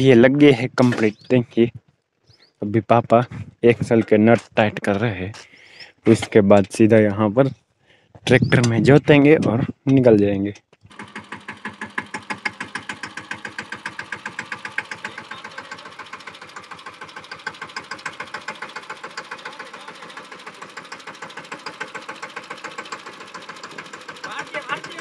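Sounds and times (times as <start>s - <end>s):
tractor diesel engine chugging: 10.9s - 25.0s.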